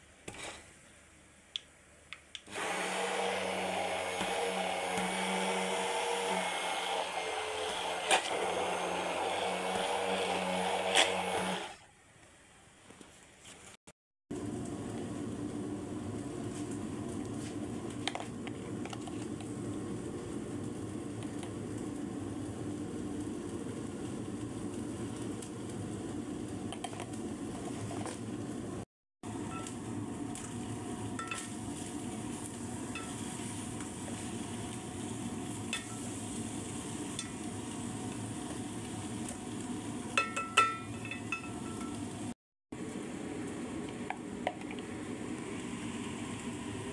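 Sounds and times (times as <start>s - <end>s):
stick blender running: 2.5s - 11.8s
chicken cooking in a skillet: 14.3s - 46.9s.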